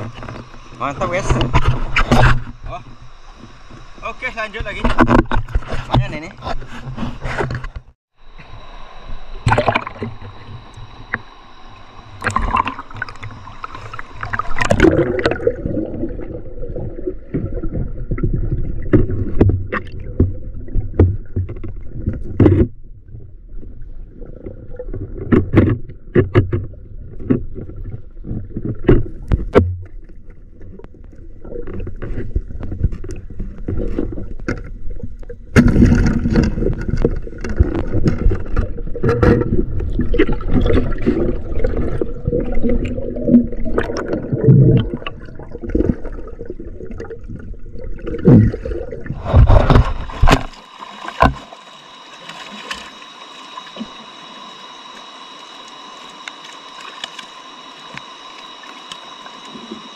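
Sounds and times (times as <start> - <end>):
river water splashing: 8.2 - 17.1, 40.0 - 59.9.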